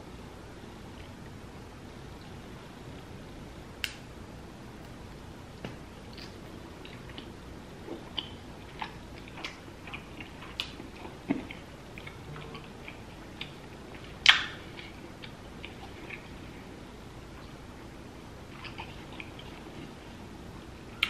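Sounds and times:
mouth chewing wet clicks: 6.1s - 7.3s, 8.0s - 16.3s.

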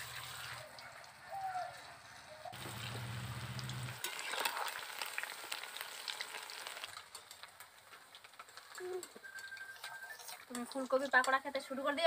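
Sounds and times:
food deep-frying in hot oil: 0.0s - 12.0s
oil crackling: 2.5s - 12.0s.

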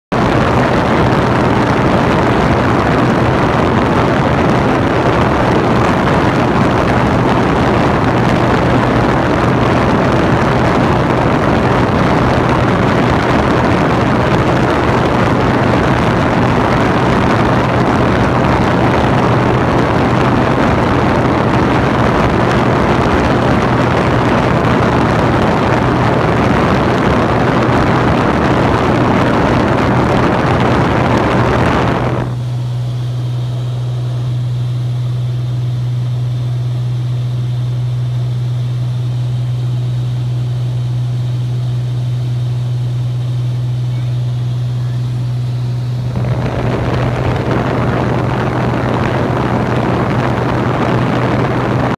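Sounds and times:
aircraft engine and propeller drone: 0.1s - 51.9s
rush of air: 44.6s - 51.9s.

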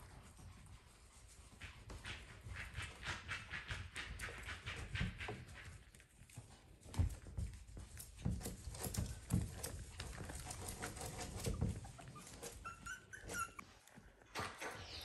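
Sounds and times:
puppies scuffling on foam mats: 0.0s - 14.3s
soft knocks and rustling: 1.3s - 12.8s
puppy whimper: 11.0s - 13.6s.

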